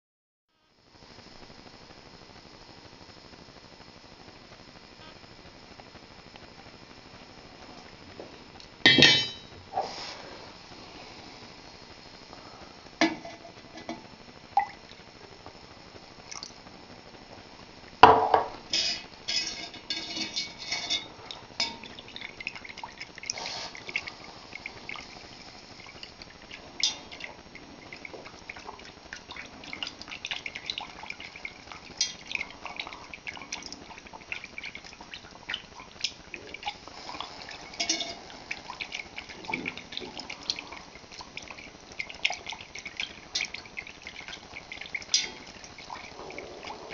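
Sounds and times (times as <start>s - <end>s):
whisk clinking in metal pot: 18.8s - 22.4s, 31.9s - 32.4s, 37.6s - 39.8s, 42.0s - 45.7s
liquid splashing and trickling: 19.3s - 46.9s.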